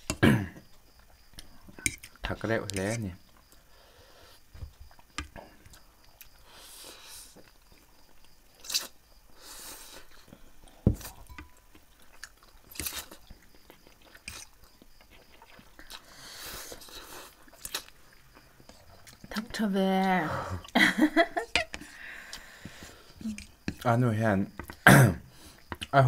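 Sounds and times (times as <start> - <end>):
noodles being slurped and chewed: 11.8 - 19.3.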